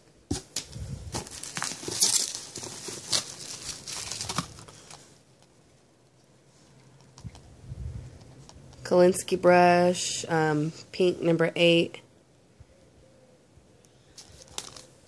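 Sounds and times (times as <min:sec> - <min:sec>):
bubble wrap crinkling: 0:00.3 - 0:05.1, 0:14.2 - 0:15.0
items pulled from cardboard box: 0:00.3 - 0:05.1.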